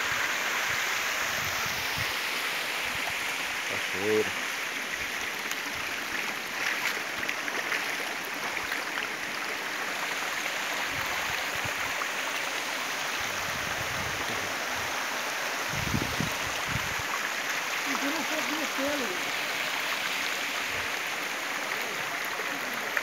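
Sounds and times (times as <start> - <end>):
waterfall and stream rushing: 0.0 - 23.0.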